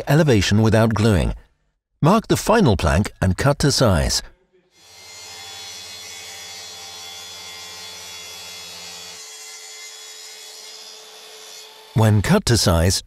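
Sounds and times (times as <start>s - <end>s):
circular saw cutting wood: 4.8s - 12.1s.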